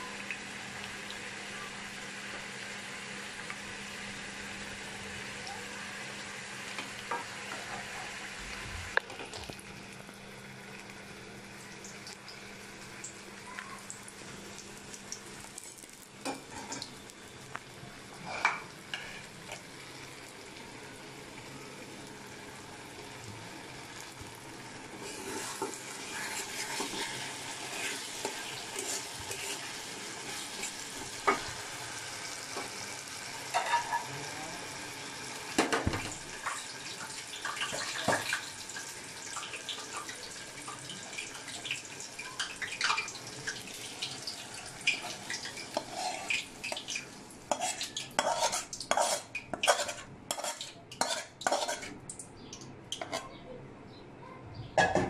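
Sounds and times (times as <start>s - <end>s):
food sizzling: 0.0s - 53.3s
metal spatula scraping pan: 25.0s - 31.5s, 44.9s - 46.8s, 47.5s - 52.0s, 53.0s - 53.3s.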